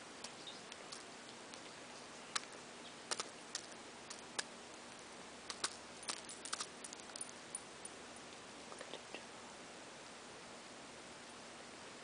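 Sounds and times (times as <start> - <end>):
bird cracking seeds with beak: 2.3 - 4.5, 5.5 - 7.3.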